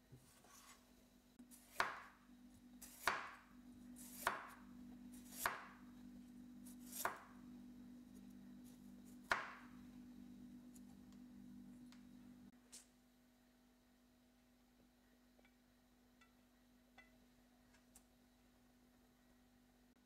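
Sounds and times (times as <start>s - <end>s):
knife chopping on wooden board: 1.6s - 2.2s, 2.8s - 3.4s, 4.0s - 4.6s, 5.2s - 5.8s, 6.8s - 7.3s, 9.2s - 9.7s.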